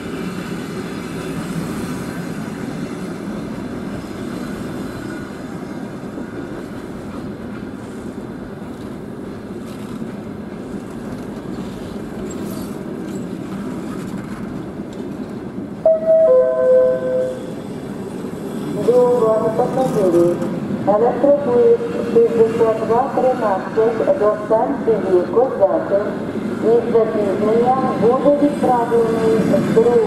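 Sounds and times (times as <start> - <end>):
train wheels on rails: 0.0 - 16.4, 17.0 - 30.0
two-note tone: 15.9 - 17.5.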